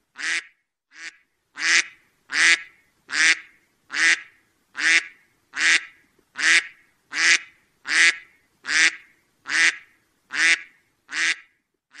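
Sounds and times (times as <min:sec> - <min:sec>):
duck quacking: 0:00.2 - 0:12.0.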